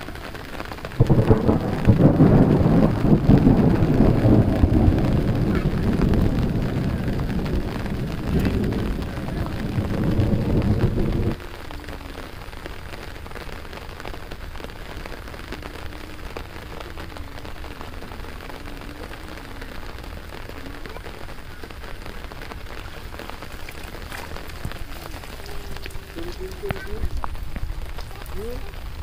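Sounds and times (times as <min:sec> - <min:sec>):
rain falling on water: 0:00.0 - 0:29.0.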